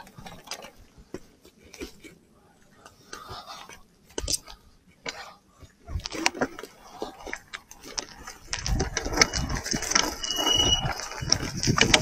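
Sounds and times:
e-bike rattling and clicking: 6.0s - 12.0s.

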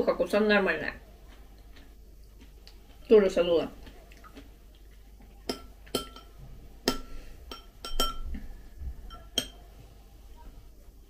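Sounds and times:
metal spoon clinking on glass: 5.5s - 8.3s, 9.1s - 9.6s.

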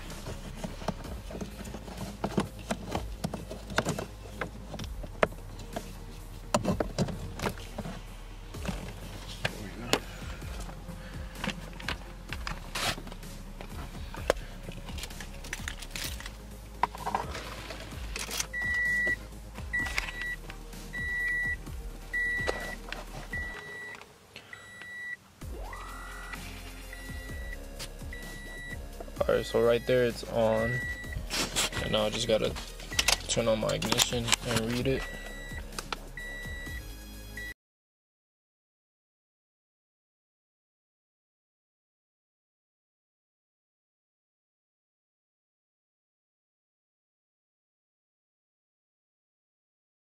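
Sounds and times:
electronic beeps: 18.5s - 32.3s, 32.9s - 33.3s, 34.9s - 37.6s
short rising tone: 25.4s - 27.6s.

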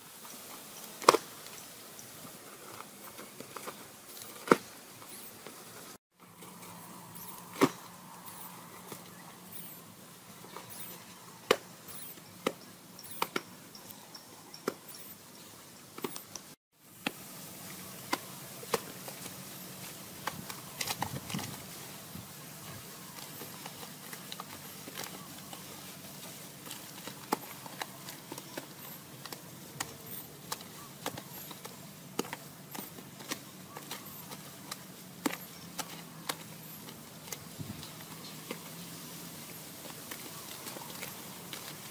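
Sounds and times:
steady outdoor hiss: 0.0s - 41.9s
hands handling wet mud: 16.0s - 41.9s.

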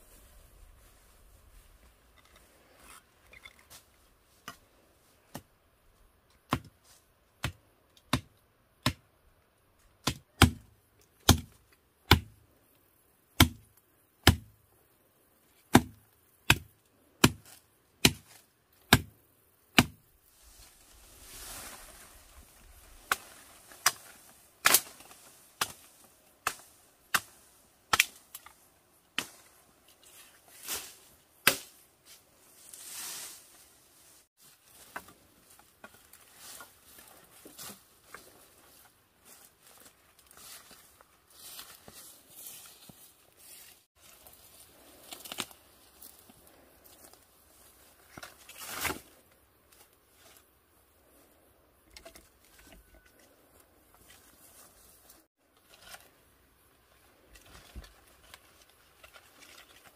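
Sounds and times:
rustle of vegetation: 0.0s - 5.3s, 20.1s - 51.6s, 52.4s - 59.9s
machete chopping brush: 10.0s - 12.4s, 14.2s - 14.5s, 15.7s - 20.0s, 22.9s - 29.5s, 30.6s - 31.8s.

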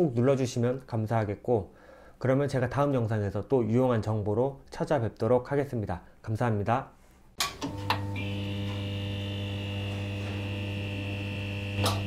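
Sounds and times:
neon sign electrical hum: 7.4s - 12.0s
thin high whine: 7.6s - 12.0s.

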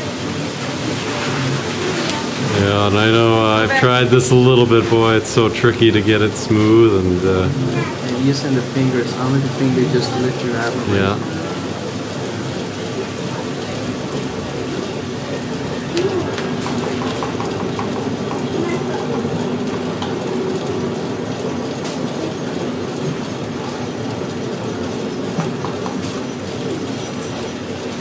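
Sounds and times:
faint voices: 0.0s - 28.0s
potter's kick wheel rumbling: 13.5s - 28.0s.

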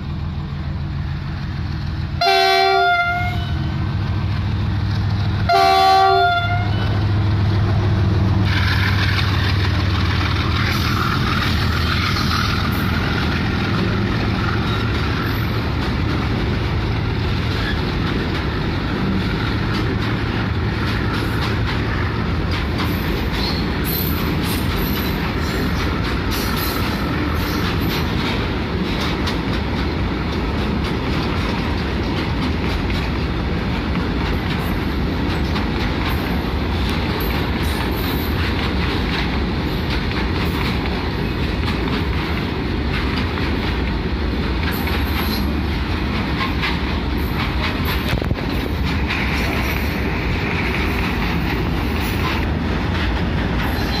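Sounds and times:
diesel locomotive engine running: 0.0s - 54.0s
train wheels rumbling on rail: 0.0s - 54.0s
locomotive horn blasts: 2.2s - 3.7s, 5.5s - 7.0s.

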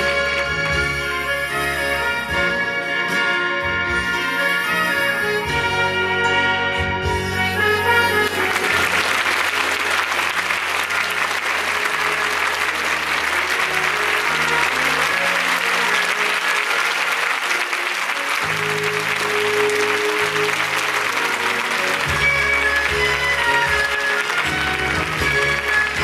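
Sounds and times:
audience applauding: 0.0s - 1.8s, 7.8s - 26.0s.

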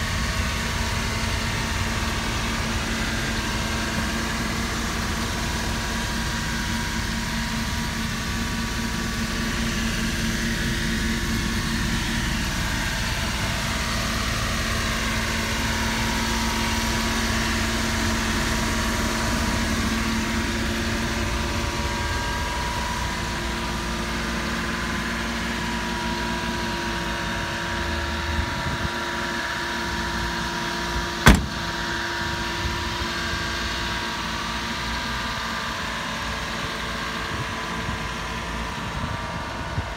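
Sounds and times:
small engine idling: 0.0s - 38.7s
sharp knock: 31.2s - 31.8s.

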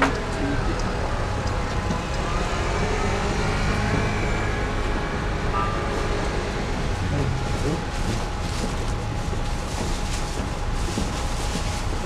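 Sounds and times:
vehicle engines passing: 0.0s - 9.5s
tyre and road noise: 0.0s - 12.0s.

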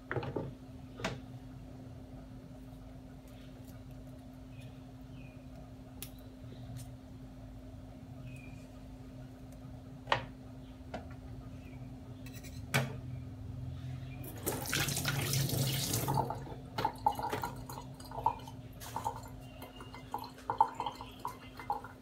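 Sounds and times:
kitchen tap running: 14.2s - 22.0s.

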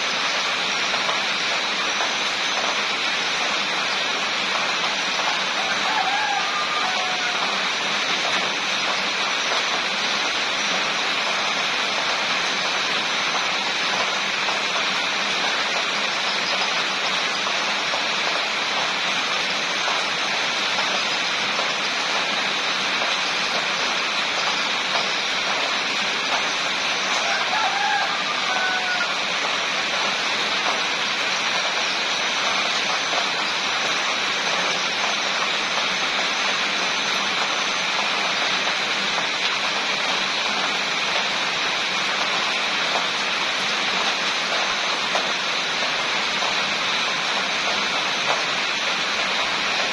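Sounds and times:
steady rain: 0.0s - 49.9s
faint rooster crow: 5.2s - 7.9s, 27.1s - 29.5s.

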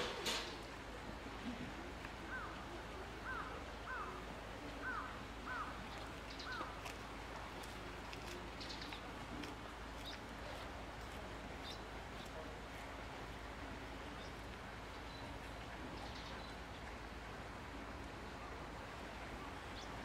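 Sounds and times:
bird calling: 4.8s - 6.9s.

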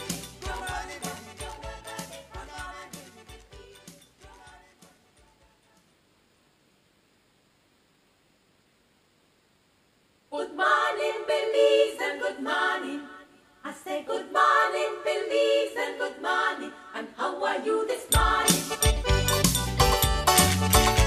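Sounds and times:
a cappella voices in harmony: 0.0s - 5.9s, 10.3s - 19.1s
instrumental music with deep bass: 18.2s - 21.0s.

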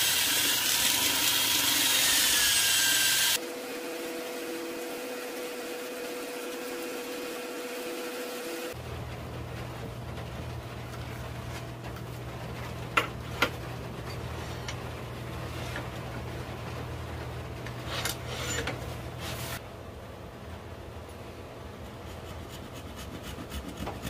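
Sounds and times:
wood lathe motor hum: 0.0s - 8.7s.

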